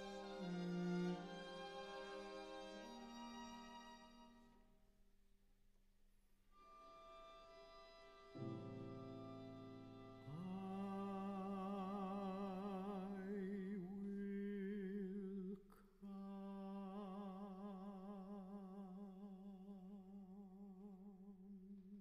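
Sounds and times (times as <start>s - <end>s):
tenor voice singing with vibrato: 10.3s - 22.0s.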